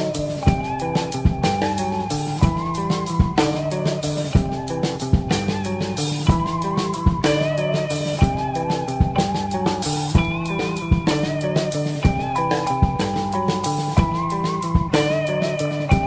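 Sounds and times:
rock music with guitar and drums: 0.0s - 16.0s.

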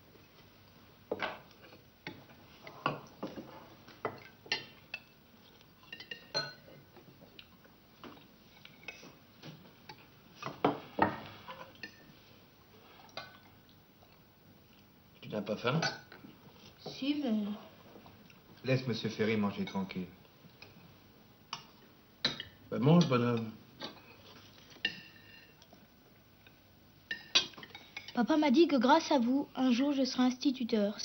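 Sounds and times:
spoons clinking on china plates: 5.9s - 6.7s.

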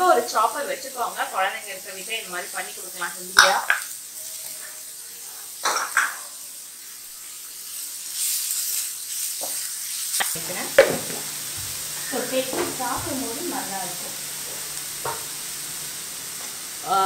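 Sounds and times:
vegetables sizzling: 0.0s - 17.0s
spatula tapping on pan: 10.7s - 11.8s, 15.0s - 15.3s.

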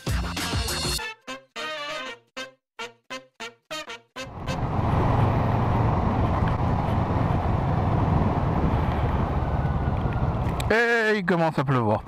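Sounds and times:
wind and road noise: 4.2s - 12.0s
motorcycle engine riding: 4.3s - 10.7s.

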